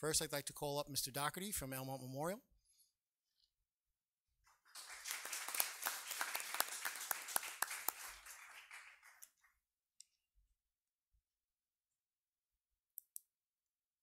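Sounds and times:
audience applauding: 0:04.5 - 0:09.6.

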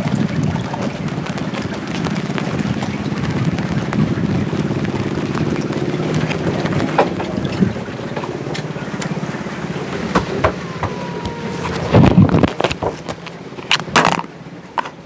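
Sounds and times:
small engine running: 0:03.9 - 0:14.2.

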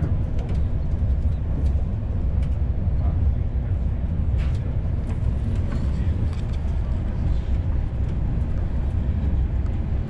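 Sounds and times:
train coach rumbling: 0:00.0 - 0:10.0.

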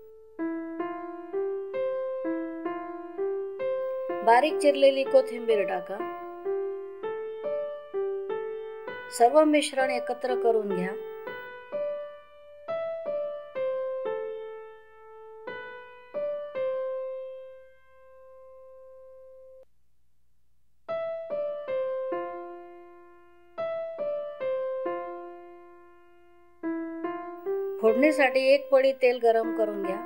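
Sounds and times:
slow piano melody: 0:00.0 - 0:19.7, 0:20.9 - 0:30.0.

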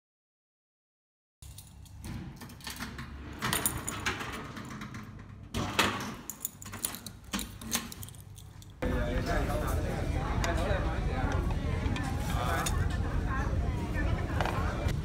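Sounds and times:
keys jangling: 0:01.4 - 0:02.8, 0:03.4 - 0:04.6, 0:06.2 - 0:08.8
metallic clanks of lock and gate: 0:01.4 - 0:08.8.

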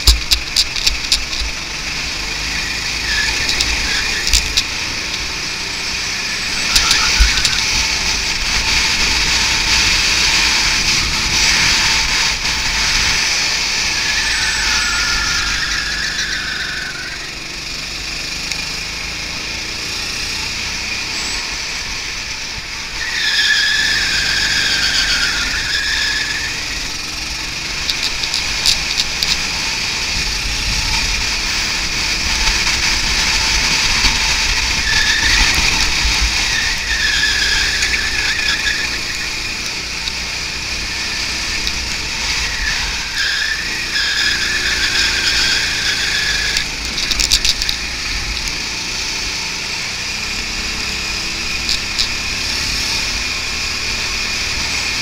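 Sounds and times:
tyres squealing: 0:00.0 - 0:18.0, 0:21.0 - 0:49.0
go-kart engine running: 0:00.0 - 0:55.0
wind noise: 0:06.5 - 0:15.6, 0:27.2 - 0:43.8.

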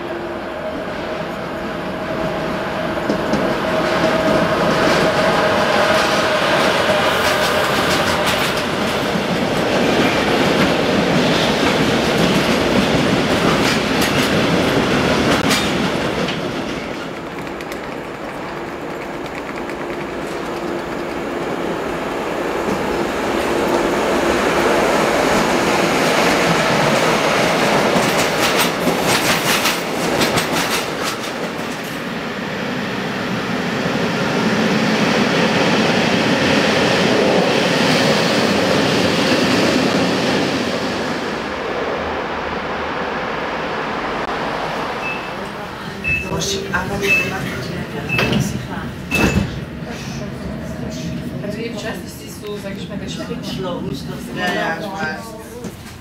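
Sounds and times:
train wheels rumbling: 0:00.7 - 0:54.4
clickety-clack over rail joints: 0:03.0 - 0:03.6, 0:05.9 - 0:21.4, 0:26.0 - 0:32.0
sharp clicks: 0:17.1 - 0:21.2.

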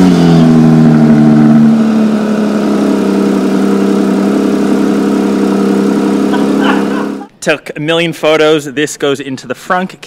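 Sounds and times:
car engine idling: 0:00.0 - 0:07.3.

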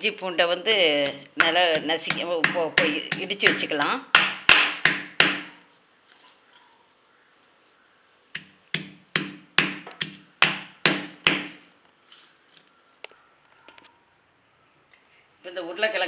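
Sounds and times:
stone pestle pounding in mortar: 0:01.0 - 0:05.6, 0:08.4 - 0:11.6.

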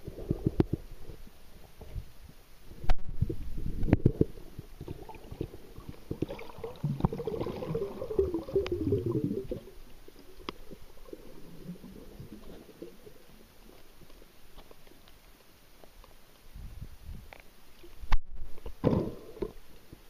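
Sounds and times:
bubbling and gurgling water: 0:00.0 - 0:02.0, 0:02.7 - 0:14.4.

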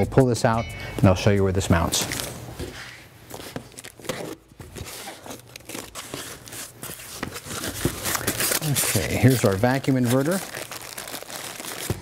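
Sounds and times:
cardboard flaps scraping: 0:01.8 - 0:12.0
packing tape tearing: 0:03.3 - 0:12.0.

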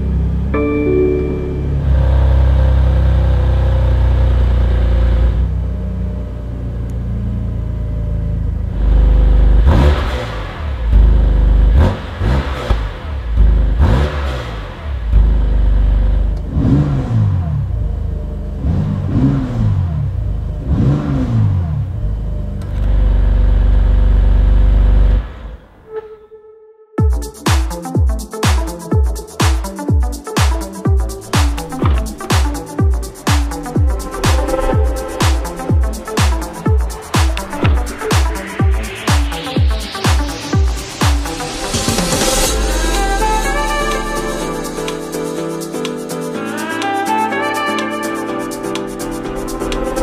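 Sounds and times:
car engine idling and revving: 0:01.8 - 0:25.8, 0:31.0 - 0:46.0.

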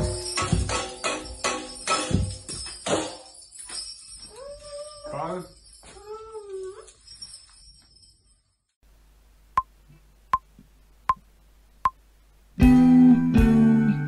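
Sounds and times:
child's voice: 0:05.9 - 0:06.9.

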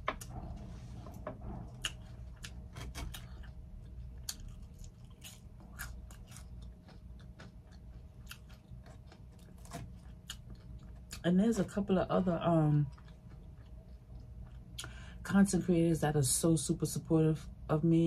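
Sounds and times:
low steady hum: 0:00.0 - 0:18.0
person chewing food: 0:01.6 - 0:11.7, 0:12.5 - 0:15.2.

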